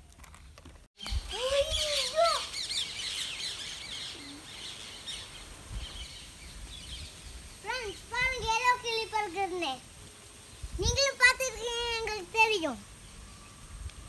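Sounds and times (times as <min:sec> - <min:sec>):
many birds chirping: 0:01.0 - 0:09.0.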